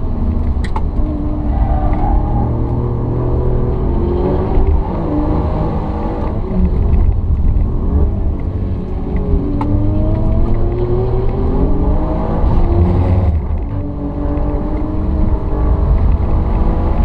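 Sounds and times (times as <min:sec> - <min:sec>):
car engine accelerating: 0:00.0 - 0:17.0
road rumble: 0:00.0 - 0:17.0.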